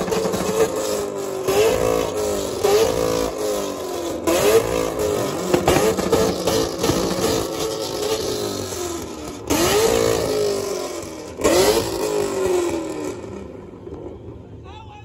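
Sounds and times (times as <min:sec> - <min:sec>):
car engine revving: 0:00.0 - 0:14.2.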